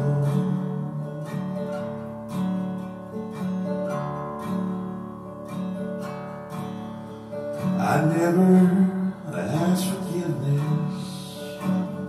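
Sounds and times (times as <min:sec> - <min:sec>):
acoustic guitar strumming chords: 0:00.0 - 0:12.0.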